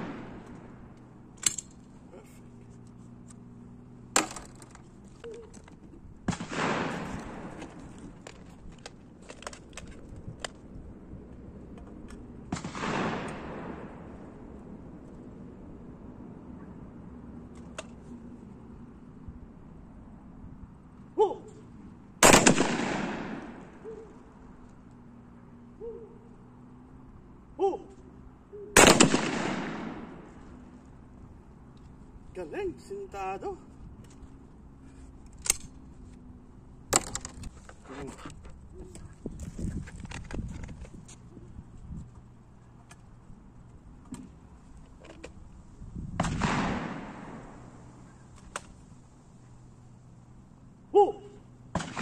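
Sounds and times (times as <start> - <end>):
shotgun shots echoing: 0.0 - 0.7, 6.2 - 7.8, 12.5 - 14.2, 22.2 - 24.0, 28.8 - 30.4, 46.2 - 47.8, 51.7 - 52.0
person shouting: 21.2 - 21.6, 27.6 - 28.0, 50.9 - 51.4
gunshot with echo: 22.2 - 23.6, 28.8 - 30.2, 46.2 - 47.6.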